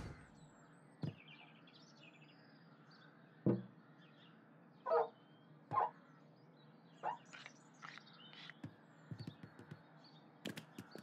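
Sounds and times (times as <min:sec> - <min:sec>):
birds chirping: 0:00.0 - 0:11.0
knock: 0:03.5 - 0:03.7.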